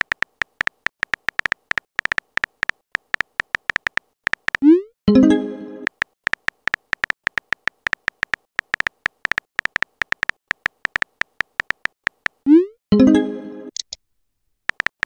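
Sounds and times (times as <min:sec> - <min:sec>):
phone keyboard clicks: 0:00.0 - 0:04.6, 0:05.8 - 0:12.4, 0:14.7 - 0:15.0.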